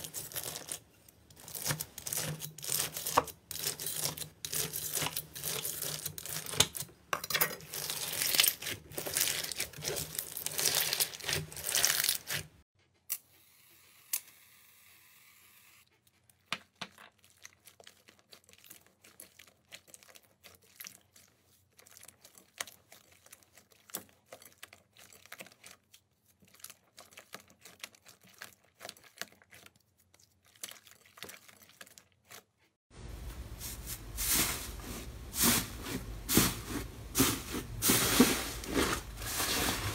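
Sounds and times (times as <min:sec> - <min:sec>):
crunchy slime crackling and popping: 0:07.7 - 0:12.5.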